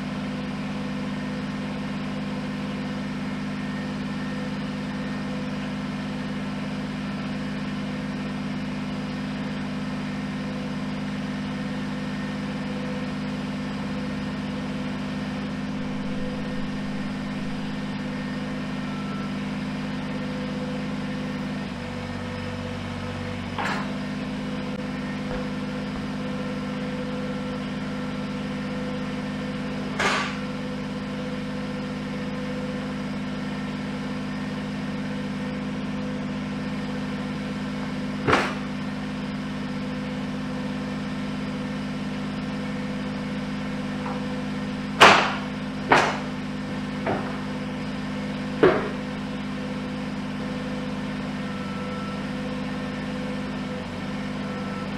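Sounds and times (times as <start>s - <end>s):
tractor diesel engine idling: 0.0s - 54.9s
sharp knocks: 38.3s - 38.7s, 45.0s - 46.3s, 48.6s - 49.0s.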